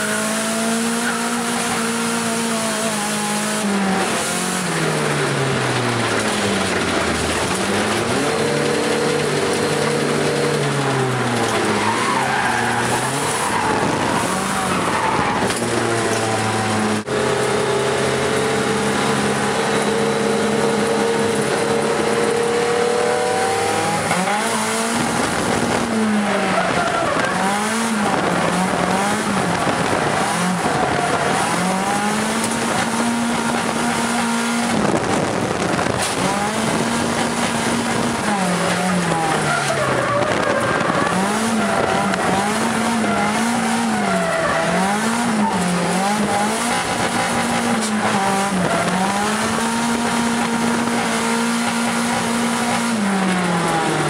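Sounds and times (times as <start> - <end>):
car engine revving: 0.0 - 54.0
tyre squeal: 38.8 - 46.1.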